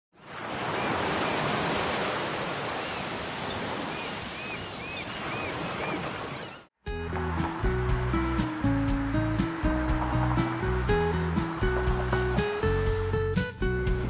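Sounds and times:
ocean surf washing ashore: 0:00.2 - 0:14.0
bird chirps: 0:02.8 - 0:06.7.

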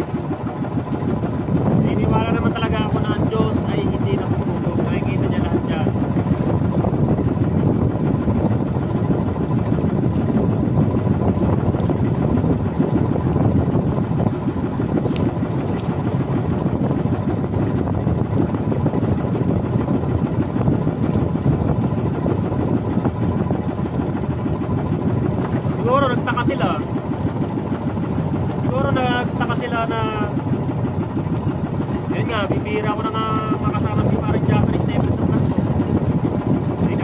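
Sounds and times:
boat engine running: 0:00.0 - 0:37.0
water rushing past hull: 0:00.0 - 0:37.0.

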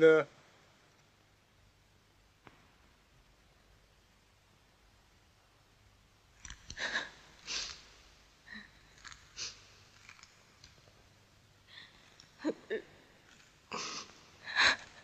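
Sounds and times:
person sniffing and breathing: 0:06.7 - 0:08.0, 0:09.2 - 0:09.7, 0:13.7 - 0:14.2.

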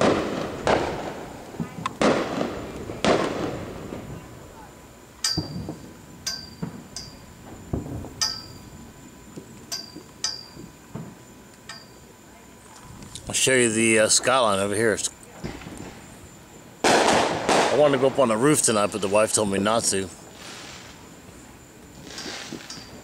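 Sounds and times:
firework shells bursting: 0:00.0 - 0:12.1, 0:12.8 - 0:23.0
sharp ringing clinks: 0:05.2 - 0:07.4, 0:08.2 - 0:08.8, 0:09.7 - 0:10.7, 0:11.7 - 0:12.1, 0:22.2 - 0:23.0.

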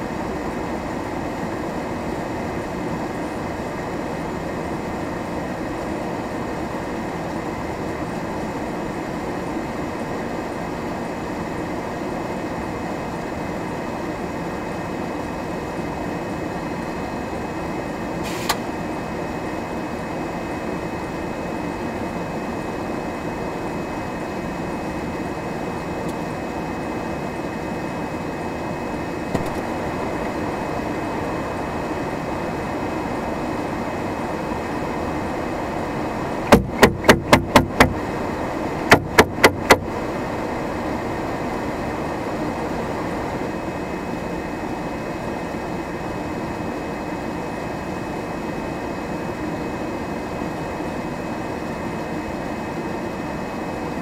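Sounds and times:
car engine idling hum: 0:29.1 - 0:33.1, 0:35.1 - 0:40.5
sharp loud knocks: 0:29.4 - 0:29.7, 0:36.5 - 0:38.0, 0:38.9 - 0:39.9.

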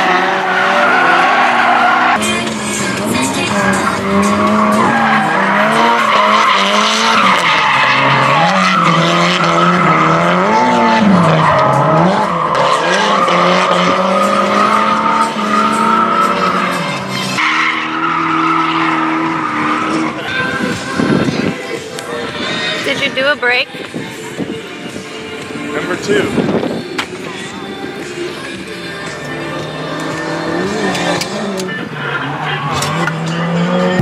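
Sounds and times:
car engine revving high: 0:00.0 - 0:21.5, 0:28.6 - 0:34.0
tyres skidding and squealing: 0:00.0 - 0:34.0.

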